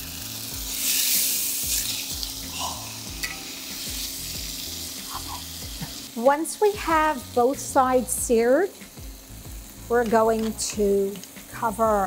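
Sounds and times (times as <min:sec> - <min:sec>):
meat sizzling in a pot: 0:00.0 - 0:12.0
metal tongs clicking on pan: 0:03.2 - 0:03.5, 0:10.0 - 0:11.4.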